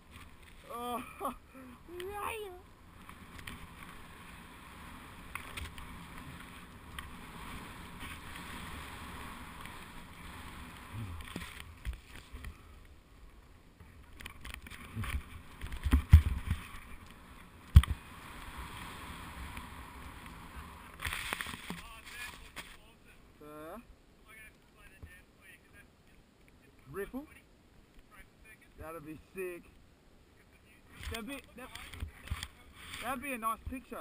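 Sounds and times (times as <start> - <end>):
skis hissing through powder snow: 3.6 - 11.5.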